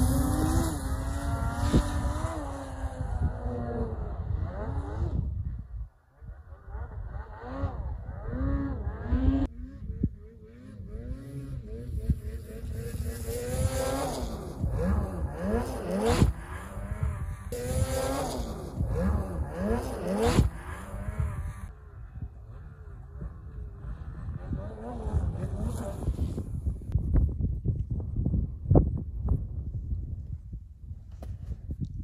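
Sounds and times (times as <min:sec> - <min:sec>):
snowmobile engine revving: 0:00.0 - 0:27.0.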